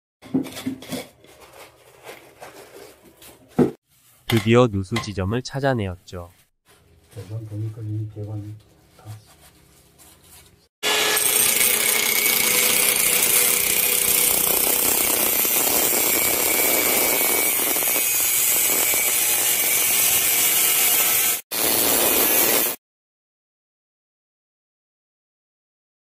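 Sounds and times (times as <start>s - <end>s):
angle grinder cutting pipe: 10.8s - 22.8s.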